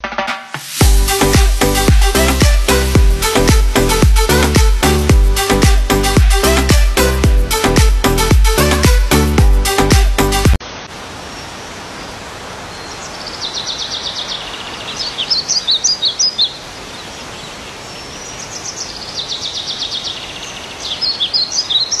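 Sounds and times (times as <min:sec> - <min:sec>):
steady background hiss: 0:10.6 - 0:22.0
songbird trilling and chirping: 0:12.7 - 0:22.0.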